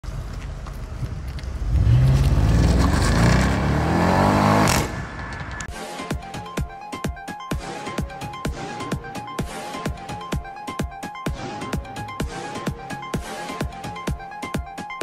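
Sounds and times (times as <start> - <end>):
car engine accelerating: 0.1 - 5.7
intro music with a beat: 5.6 - 15.0.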